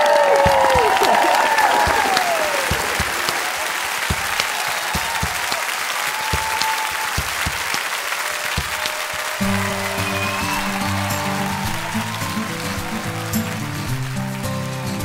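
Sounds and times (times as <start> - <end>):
crowd applauding: 0.0 - 15.0.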